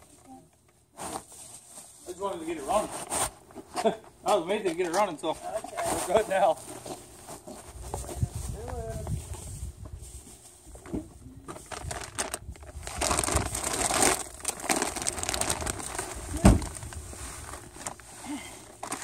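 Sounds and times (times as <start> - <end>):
plastic bag crinkling: 11.6 - 19.0.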